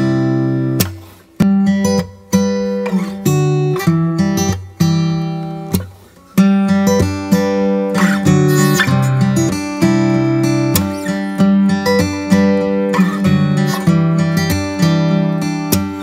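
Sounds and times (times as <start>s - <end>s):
acoustic guitar strumming: 0.0s - 16.0s.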